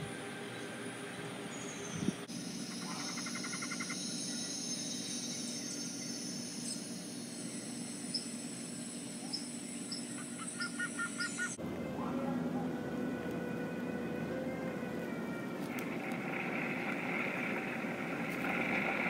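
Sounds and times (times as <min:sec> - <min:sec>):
insects buzzing high-pitched: 0:00.0 - 0:11.6
rapid insect chirps: 0:01.5 - 0:11.6.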